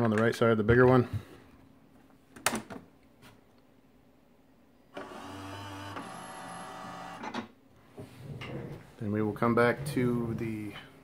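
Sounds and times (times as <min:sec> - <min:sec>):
printer motors whirring: 0:05.0 - 0:07.3.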